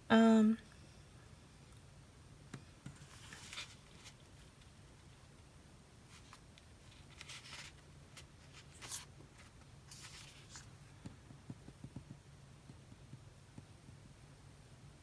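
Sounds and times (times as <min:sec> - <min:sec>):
paper pages rustling: 0:02.9 - 0:04.7, 0:06.1 - 0:10.7.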